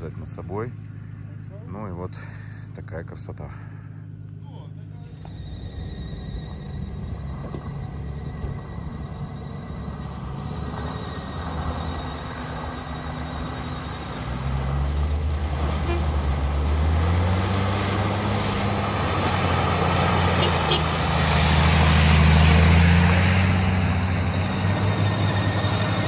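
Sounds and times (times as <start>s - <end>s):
off-road vehicle engine running: 0.0s - 26.0s.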